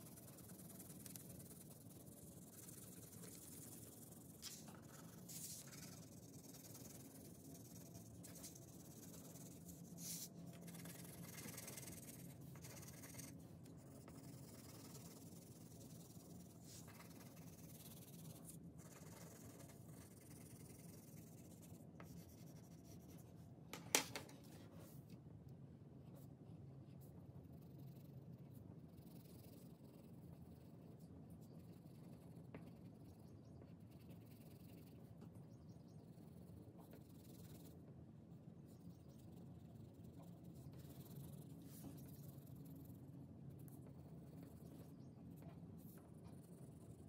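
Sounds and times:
crayon scratching on paper: 0:00.0 - 0:23.3.

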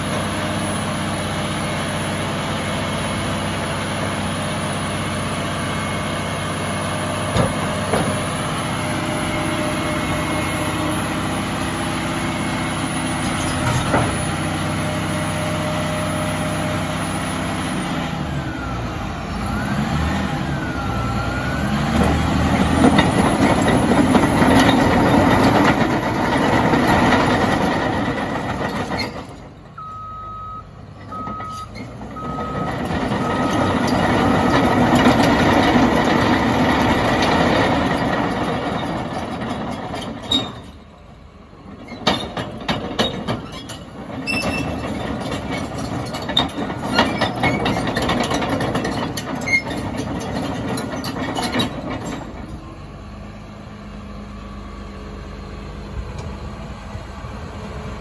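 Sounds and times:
bulldozer diesel engine: 0:00.0 - 0:58.0
reverse alarm beeping: 0:29.8 - 0:34.6.

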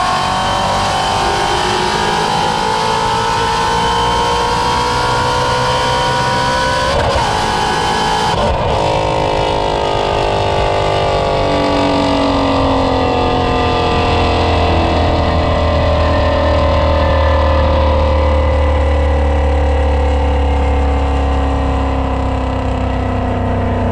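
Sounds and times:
car engine at speed: 0:00.0 - 0:23.9
deep low rumble: 0:08.5 - 0:23.9.

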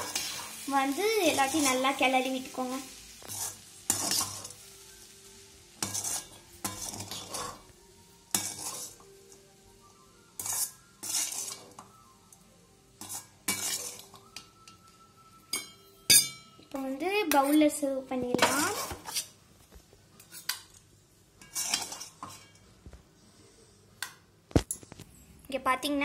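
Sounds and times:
metal spatula scraping a pan: 0:00.0 - 0:00.7, 0:03.2 - 0:04.7, 0:05.7 - 0:07.7, 0:08.3 - 0:09.1, 0:10.3 - 0:11.9, 0:13.0 - 0:14.8, 0:18.4 - 0:19.4, 0:20.2 - 0:20.8, 0:21.4 - 0:22.7.

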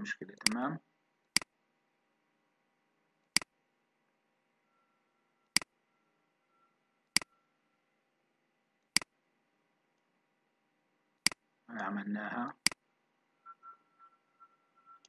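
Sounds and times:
faint steady hum: 0:00.0 - 0:15.0
computer mouse clicks: 0:01.3 - 0:01.5, 0:03.3 - 0:03.5, 0:05.5 - 0:05.7, 0:07.1 - 0:07.3, 0:08.8 - 0:09.1.

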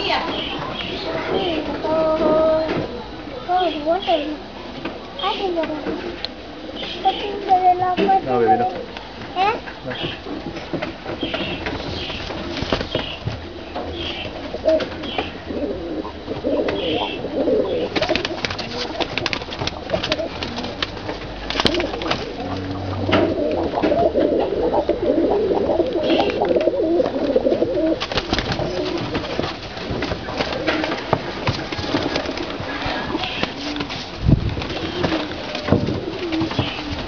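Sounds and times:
pigeons cooing: 0:00.0 - 0:37.0.

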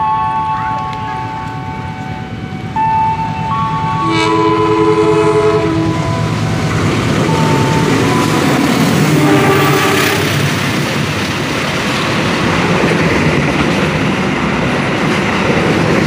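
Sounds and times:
train horn blast: 0:00.0 - 0:10.5
locomotive engine: 0:00.0 - 0:16.0
train wheels on rails: 0:00.0 - 0:16.0.

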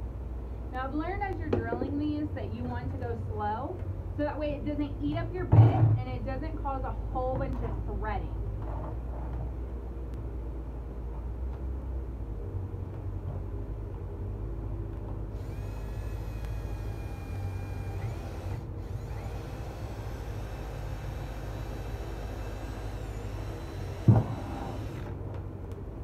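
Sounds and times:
cordless drill boring into plastic: 0:15.4 - 0:25.2.

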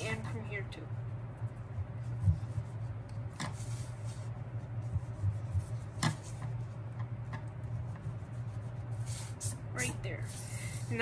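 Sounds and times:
steady low hum: 0:00.0 - 0:11.0
scratchy drawing on paper: 0:01.8 - 0:06.8, 0:07.6 - 0:11.0.

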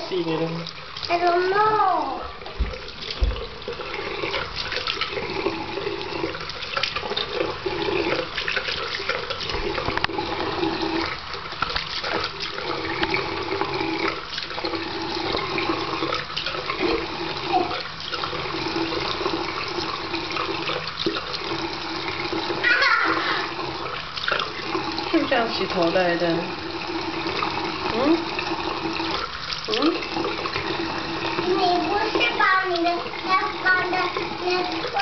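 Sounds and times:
tap water running into sink: 0:00.0 - 0:35.0
water splashing: 0:00.0 - 0:35.0.

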